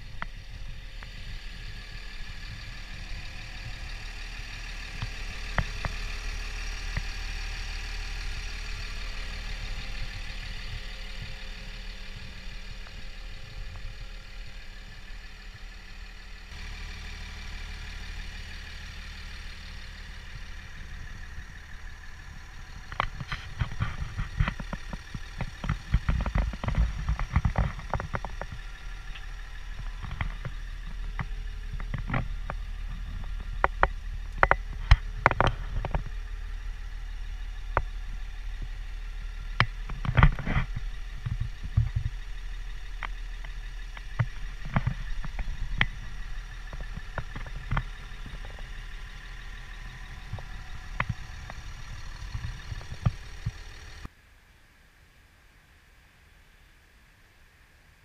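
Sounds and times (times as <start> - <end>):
diesel engine idling: 0.0 - 54.1
sharp clicks and knocks: 22.2 - 36.9, 37.6 - 54.1.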